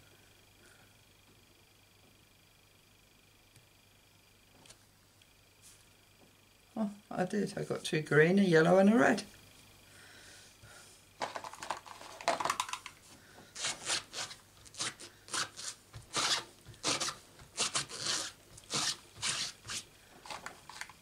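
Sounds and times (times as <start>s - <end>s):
rubber stamp scrubbing on pad: 13.6s - 19.9s.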